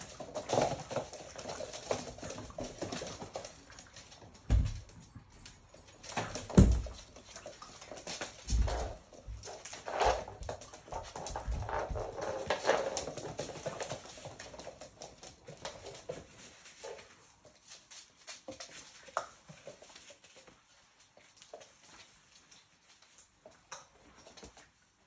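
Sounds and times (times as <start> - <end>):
claws clicking on floor: 0.0 - 24.8.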